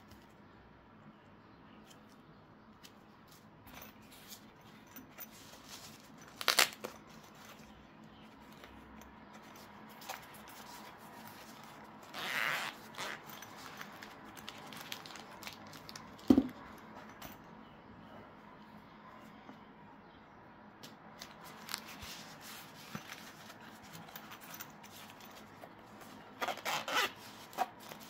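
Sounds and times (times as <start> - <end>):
packaging rustle: 5.2 - 7.8, 9.4 - 16.3.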